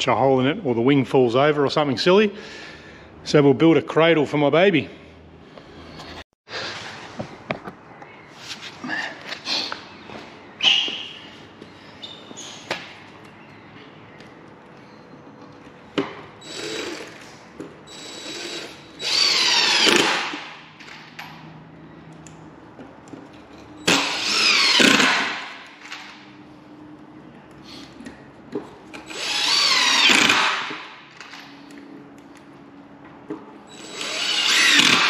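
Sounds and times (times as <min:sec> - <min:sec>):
cordless drill driving screws: 0:16.4 - 0:20.5, 0:23.8 - 0:25.5, 0:29.0 - 0:30.9, 0:33.7 - 0:35.0.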